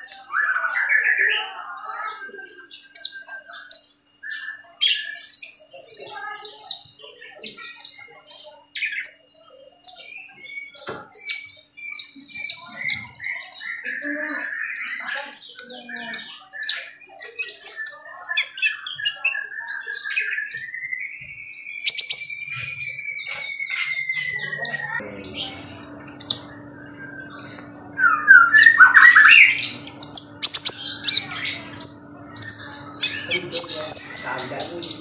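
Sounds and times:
songbird chirping: 0.0 - 35.0
steady hum: 24.0 - 35.0.

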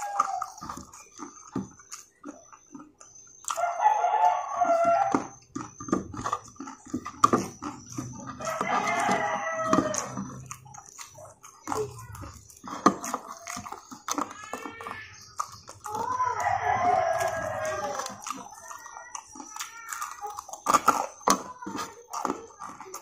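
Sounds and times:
rooster crowing: 0.0 - 0.7, 3.5 - 5.4, 8.4 - 10.4, 16.2 - 18.3
crunching and chewing food: 0.0 - 23.0.

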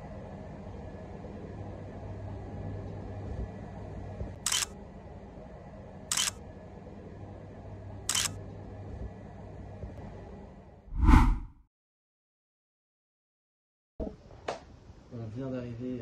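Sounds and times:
camera shutter clicks: 4.4 - 4.7, 6.1 - 6.4, 8.1 - 8.4.

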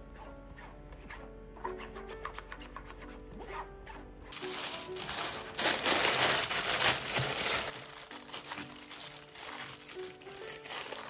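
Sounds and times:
parchment paper crinkling: 4.3 - 11.0.

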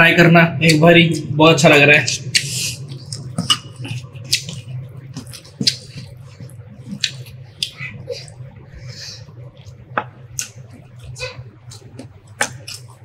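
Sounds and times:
steady low hum: 0.0 - 13.0
wet chewing: 2.0 - 13.0
lip smacks: 2.1 - 8.4, 9.4 - 13.0.

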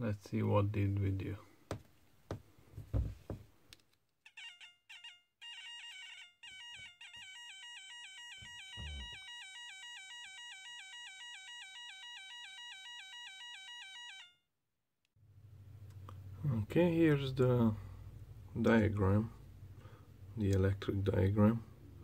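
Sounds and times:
rapid electronic beeping: 8.4 - 9.4.

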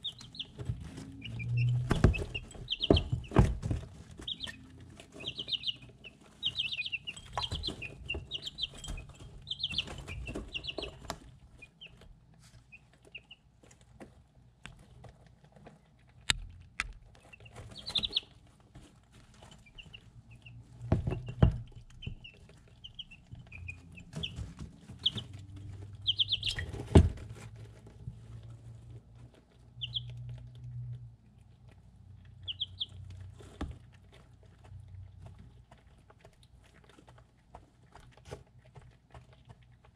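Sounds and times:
chicks peeping: 0.0 - 16.5, 17.1 - 39.9
beaks tapping on ceramic dish: 1.3 - 3.5, 5.2 - 11.2, 26.0 - 26.8.

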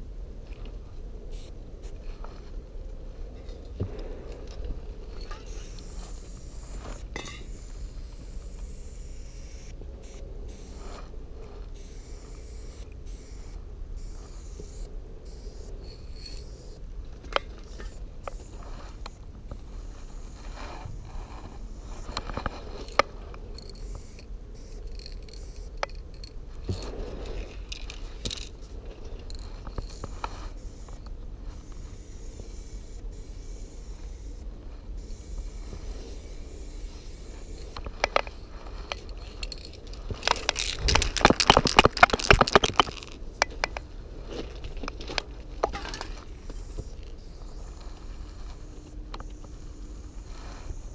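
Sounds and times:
steady low rumble: 0.0 - 50.9
spray paint can hissing: 1.3 - 2.0, 5.4 - 11.0, 11.7 - 16.8, 17.6 - 22.3, 23.6 - 26.3, 29.3 - 34.4, 35.0 - 37.9, 46.2 - 50.9.

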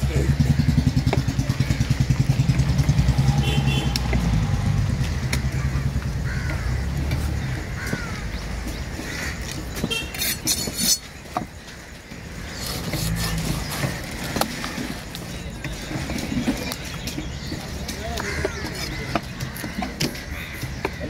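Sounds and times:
vehicle engine idling: 0.0 - 10.1.

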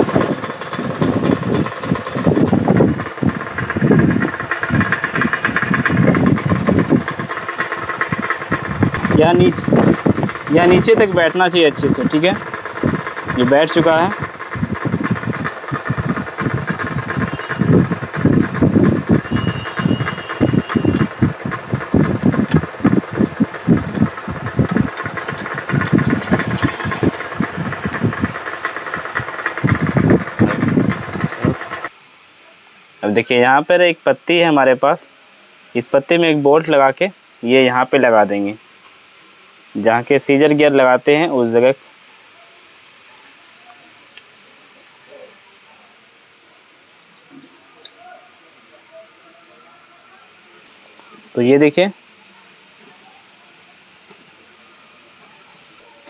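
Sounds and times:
low throbbing rumble: 0.0 - 11.3, 21.0 - 31.8
engine idling: 0.0 - 31.9, 35.8 - 37.7
light metallic clicks: 35.9 - 37.0.

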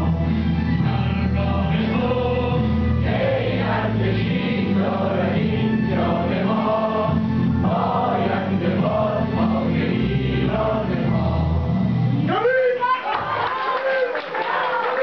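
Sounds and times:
choir singing: 0.0 - 12.1
instrumental accompaniment: 0.0 - 12.3.

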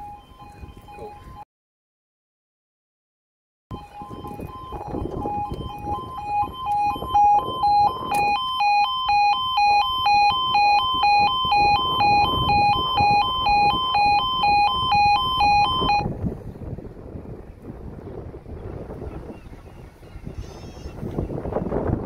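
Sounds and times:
level crossing two-tone alarm: 0.0 - 1.4, 3.7 - 16.1
wind rumble on microphone: 0.0 - 1.4, 3.7 - 22.0.

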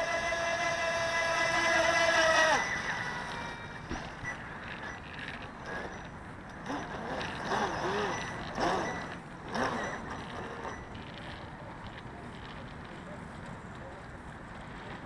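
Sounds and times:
model boat motor whining: 0.0 - 11.4.

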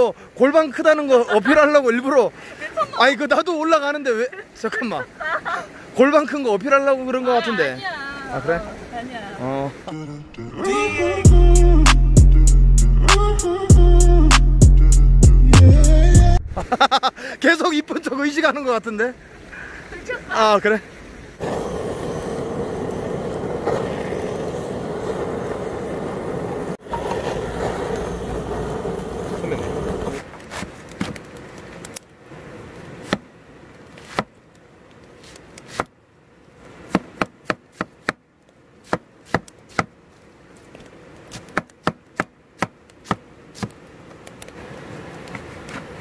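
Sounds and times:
butane torch flame: 21.4 - 46.0.

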